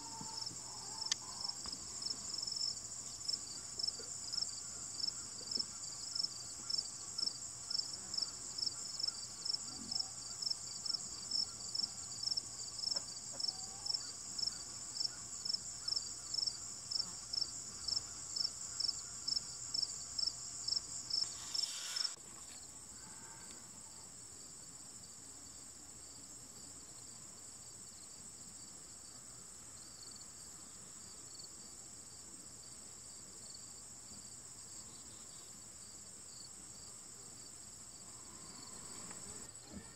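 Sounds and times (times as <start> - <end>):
insects trilling: 0.0 - 24.0.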